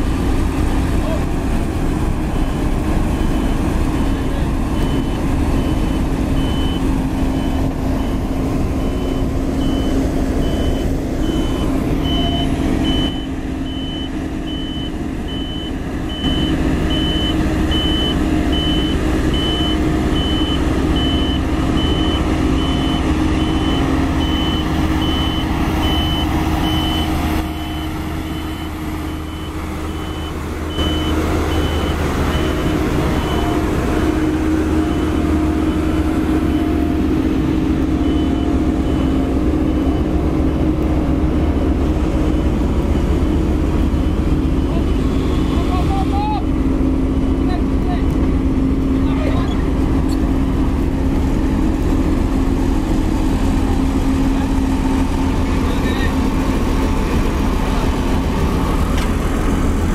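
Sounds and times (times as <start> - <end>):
heavy diesel engine running: 0.0 - 59.9
reversing alarm beeping: 4.7 - 46.5.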